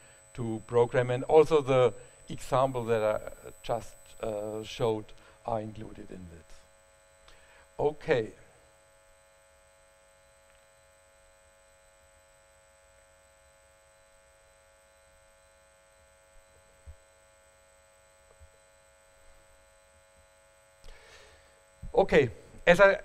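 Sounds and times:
faint electrical hum and whine: 0.0s - 23.0s.

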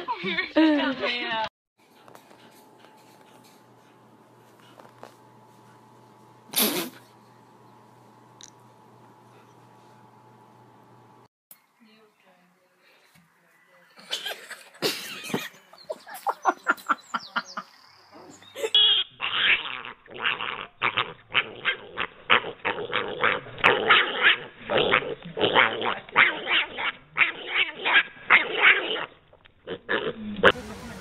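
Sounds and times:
pig squealing and grunting: 18.8s - 30.5s.

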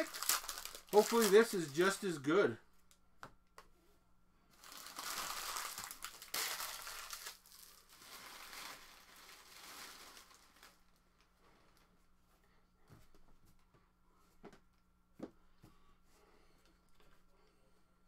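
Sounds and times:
plastic wrapping crinkling and tearing: 0.0s - 2.1s, 4.5s - 11.0s.

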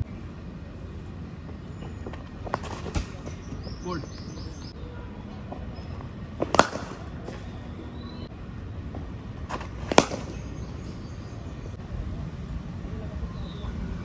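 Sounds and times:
cricket bat hitting ball: 6.3s - 7.5s, 9.4s - 10.7s.

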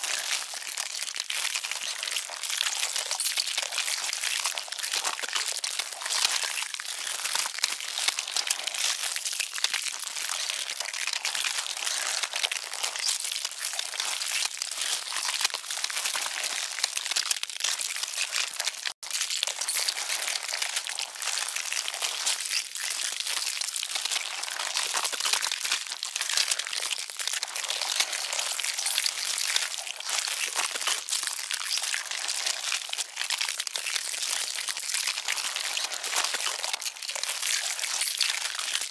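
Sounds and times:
dense crackling and crinkling: 0.0s - 38.9s.

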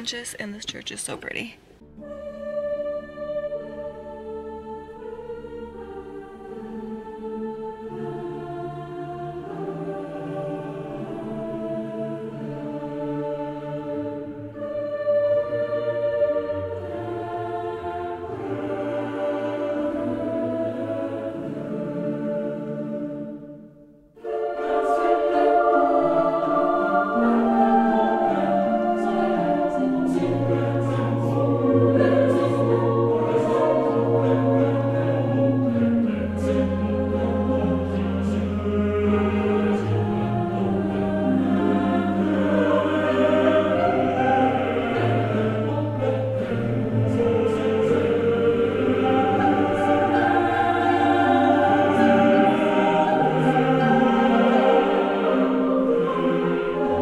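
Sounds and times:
slow choral singing: 1.8s - 57.0s.

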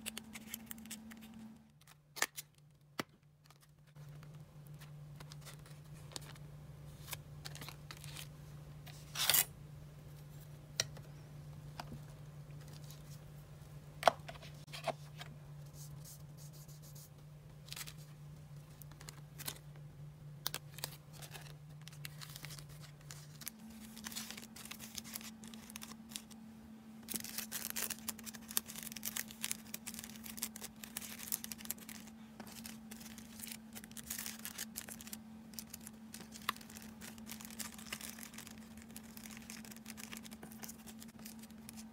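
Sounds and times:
faint low hum: 0.0s - 41.9s
plastic bags crinkling: 20.5s - 26.4s, 27.0s - 41.9s.

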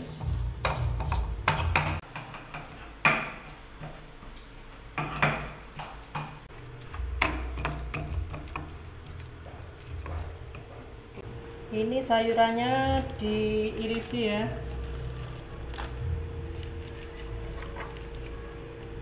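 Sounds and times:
stone pestle grinding spice paste: 0.1s - 2.7s, 6.5s - 11.0s.

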